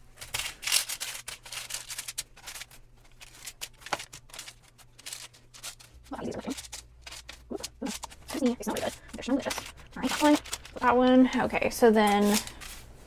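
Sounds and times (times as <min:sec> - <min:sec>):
paper crinkling: 0:00.0 - 0:13.0
plastic spatula scraping baking sheet: 0:04.3 - 0:11.2.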